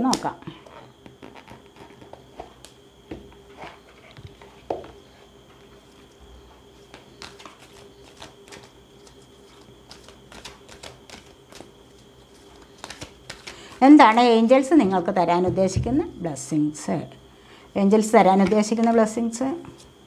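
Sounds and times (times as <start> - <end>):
faint steady hum: 0.0 - 20.0
cards being shuffled: 6.8 - 13.8.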